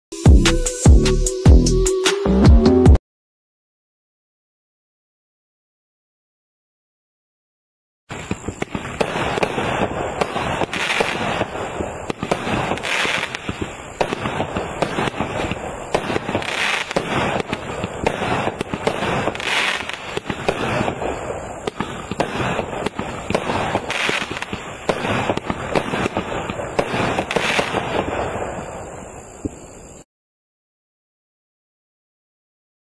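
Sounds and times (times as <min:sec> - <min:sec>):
fireworks popping and crackling: 0:08.1 - 0:30.0
hissing firework shot: 0:08.1 - 0:30.1.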